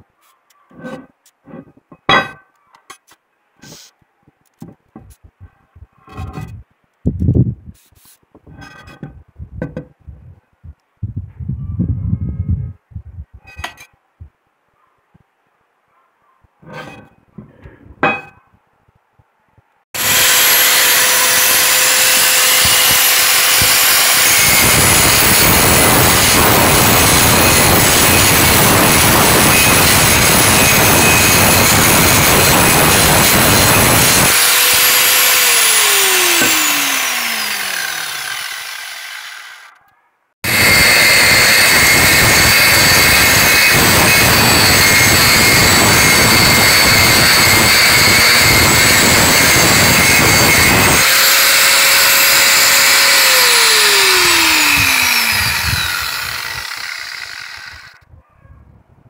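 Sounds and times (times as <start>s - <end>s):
angle grinder grinding steel: 0.7s - 2.4s, 6.1s - 6.5s, 8.6s - 9.1s, 16.6s - 17.2s, 20.0s - 39.8s, 40.4s - 58.0s.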